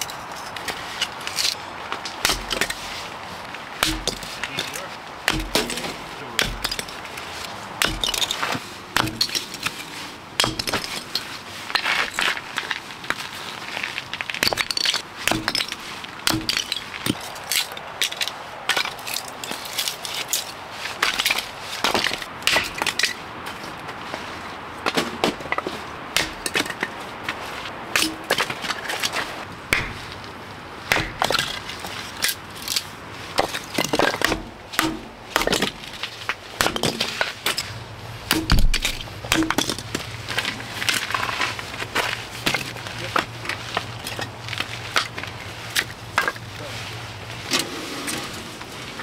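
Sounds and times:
firewood splitting knocks: 0:02.0 - 0:02.8, 0:03.8 - 0:07.0, 0:07.8 - 0:09.7, 0:10.4 - 0:11.1, 0:14.4 - 0:17.2, 0:24.8 - 0:26.9, 0:29.7 - 0:30.2, 0:30.9 - 0:31.6, 0:33.4 - 0:36.0, 0:36.6 - 0:37.6, 0:38.2 - 0:41.3.

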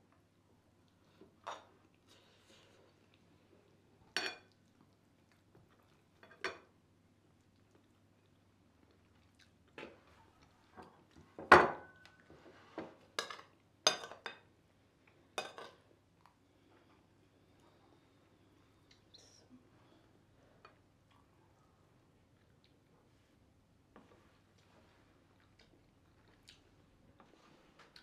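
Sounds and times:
metal spoons clinking on dishes: 0:13.2 - 0:14.4, 0:15.4 - 0:15.8.

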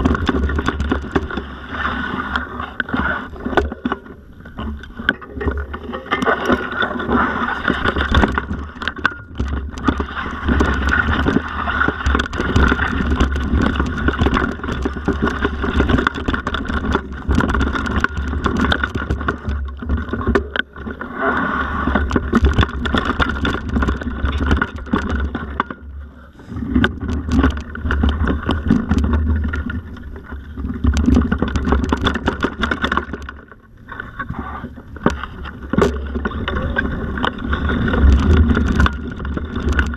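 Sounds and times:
bike rattling over bumps: 0:00.0 - 0:39.9
bike tyres rolling over dirt: 0:00.0 - 0:39.9.

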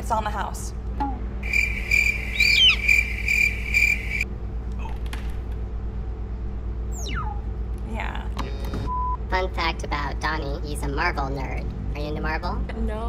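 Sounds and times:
crickets chirping: 0:01.4 - 0:04.3.

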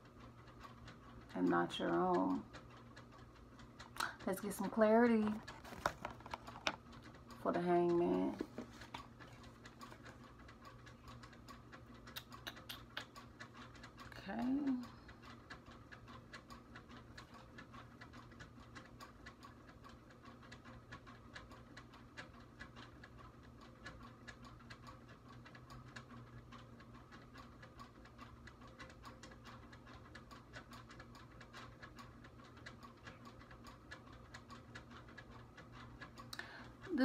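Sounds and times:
faint room hum: 0:00.0 - 0:37.0
small irregular ticks: 0:00.0 - 0:37.0.

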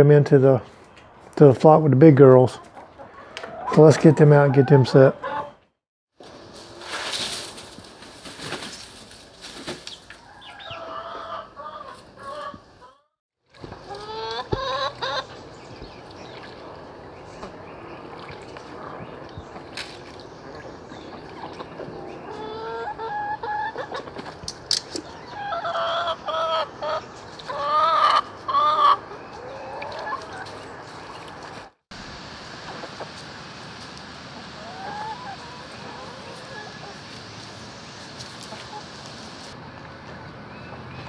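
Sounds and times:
outdoor background noise: 0:00.0 - 0:41.0
chickens clucking and calling: 0:02.5 - 0:05.7, 0:09.8 - 0:19.7, 0:20.3 - 0:31.7, 0:34.3 - 0:41.0.

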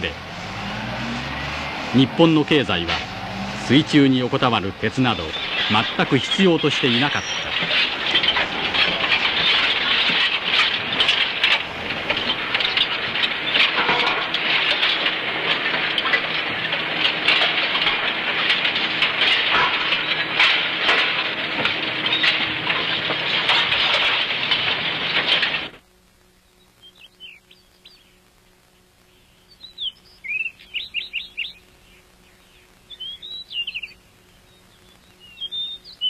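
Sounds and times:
scrap iron clattering: 0:00.1 - 0:25.8.

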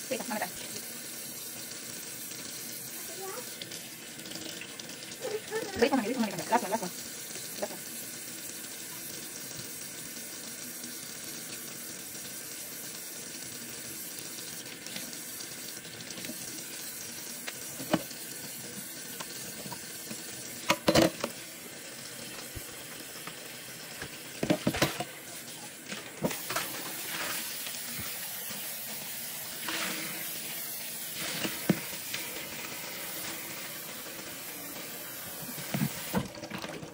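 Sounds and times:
tap running into metal bowl: 0:17.4 - 0:21.4, 0:22.3 - 0:25.2, 0:31.2 - 0:32.2.

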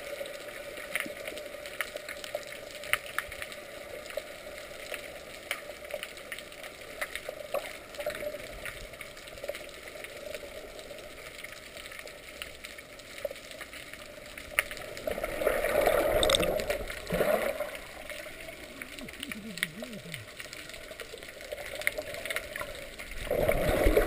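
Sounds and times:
underwater rushing noise: 0:00.0 - 0:24.0
sharp underwater clicks: 0:15.7 - 0:23.1.

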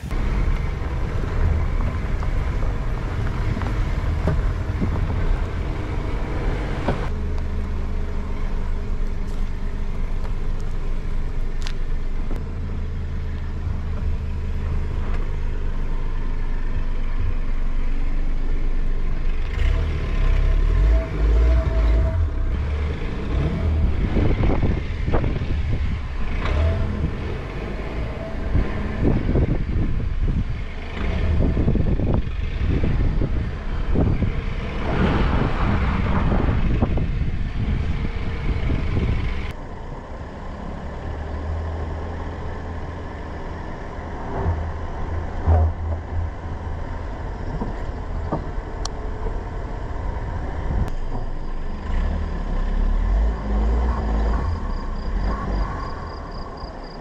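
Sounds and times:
car engine rumble: 0:00.0 - 0:57.0.

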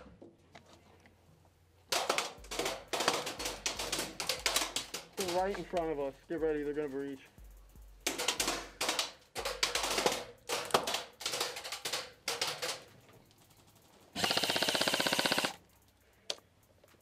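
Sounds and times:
airsoft gunfire bursts: 0:01.9 - 0:05.6, 0:14.2 - 0:15.6
airsoft rifle full-auto burst: 0:14.1 - 0:15.6.

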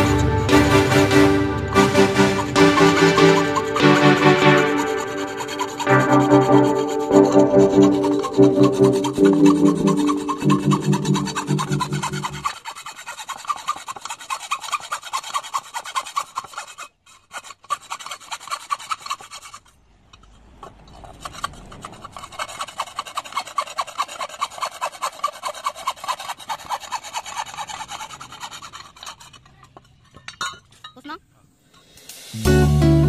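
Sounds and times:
hacksaw cutting metal bar: 0:00.0 - 0:19.7, 0:21.2 - 0:30.6.

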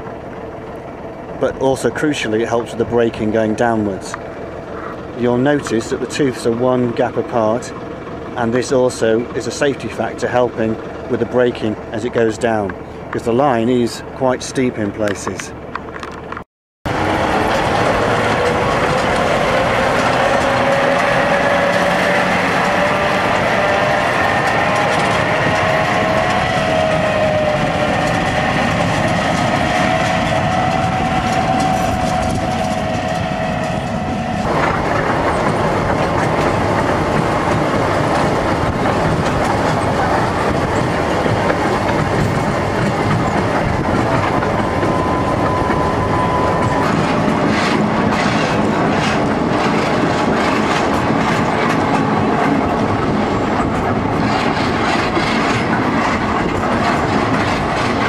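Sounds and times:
diesel locomotive engine: 0:00.0 - 0:58.0
train rattling on rack line: 0:00.0 - 0:58.0.

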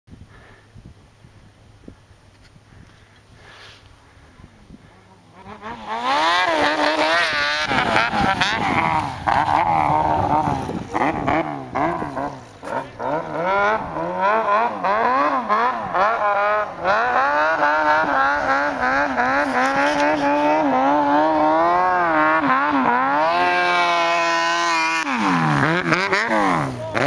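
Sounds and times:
snowmobile engine revving: 0:04.9 - 0:27.0.

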